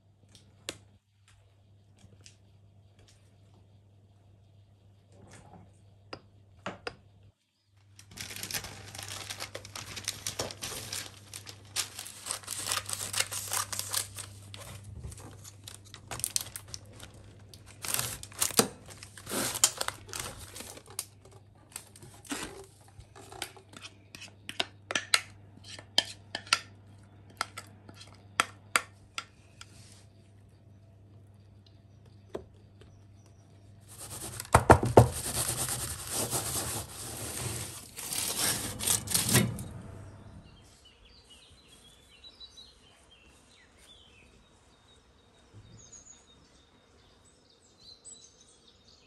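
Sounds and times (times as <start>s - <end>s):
low steady hum: 0.0s - 41.2s
parchment paper crinkling: 7.9s - 23.4s, 33.9s - 39.4s.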